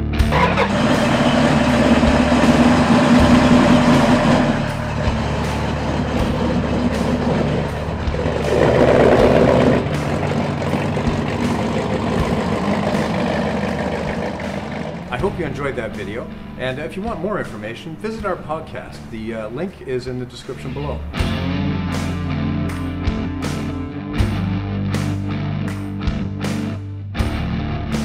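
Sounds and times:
car engine idling and revving: 0:00.0 - 0:17.2, 0:20.4 - 0:28.0.

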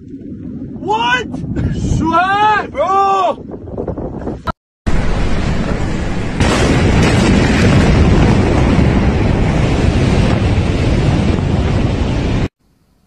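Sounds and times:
explosion rumbling roar: 0:04.9 - 0:12.5.

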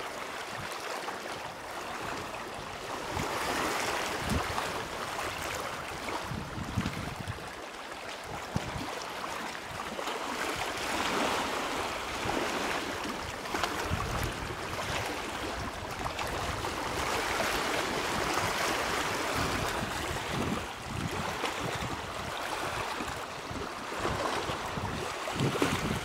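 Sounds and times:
waves splashing and lapping: 0:00.0 - 0:26.0
wind buffeting microphone: 0:02.8 - 0:07.6, 0:12.0 - 0:26.0.

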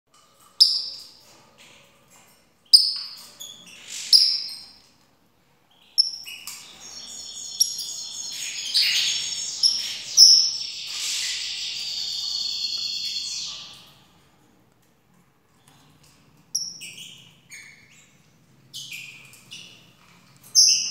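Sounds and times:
parrot chirping: 0:05.8 - 0:13.9
parrot warbling song: 0:07.0 - 0:13.9.

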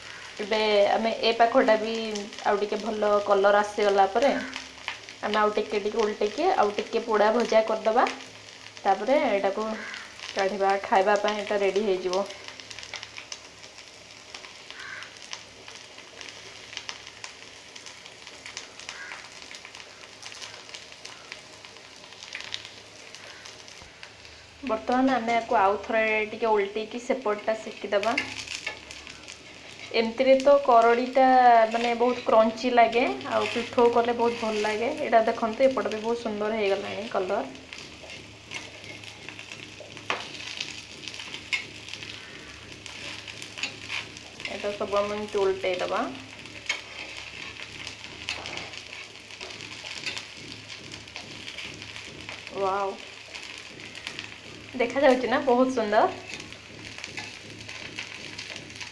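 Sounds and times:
fritters sizzling in oil: 0:00.0 - 0:58.9
spatula scraping and tapping pan: 0:33.1 - 0:34.8, 0:37.7 - 0:45.3, 0:46.3 - 0:52.5, 0:56.1 - 0:58.9.

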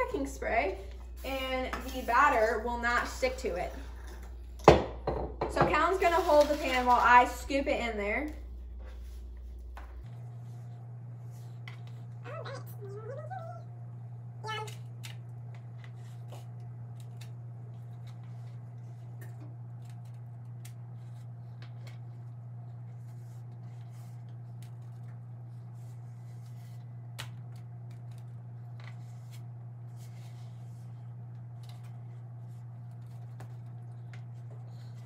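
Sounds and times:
steady low hum: 0:00.0 - 0:35.0
spatula scraping bowl: 0:01.2 - 0:04.4, 0:05.7 - 0:07.4.

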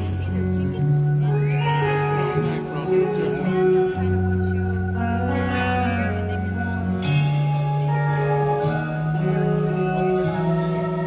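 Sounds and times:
held low bass notes: 0:00.0 - 0:11.0
sustained electric guitar notes: 0:00.0 - 0:11.0.

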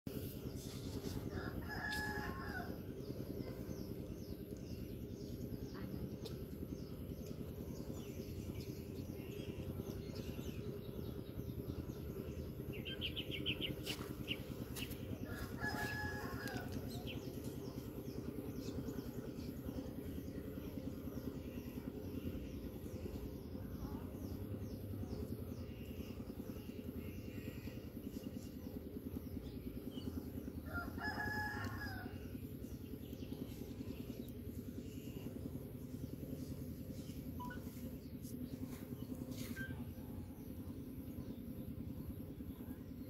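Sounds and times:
low outdoor rumble: 0:00.1 - 0:43.0
rooster crowing: 0:01.3 - 0:02.8, 0:15.2 - 0:17.0, 0:30.7 - 0:32.2.

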